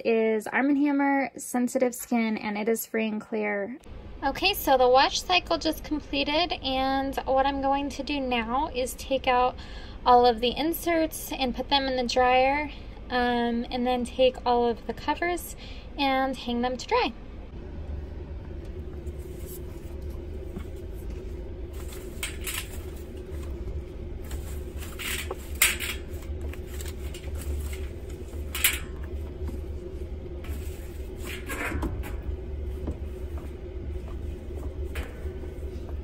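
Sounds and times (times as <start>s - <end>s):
steady low hum: 3.8s - 36.0s
cloth rustling: 19.0s - 31.7s.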